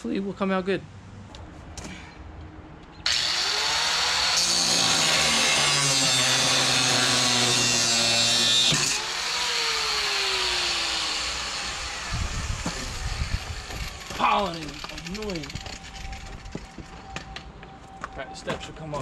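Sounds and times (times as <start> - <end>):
power tool motor spinning: 3.1 - 17.0.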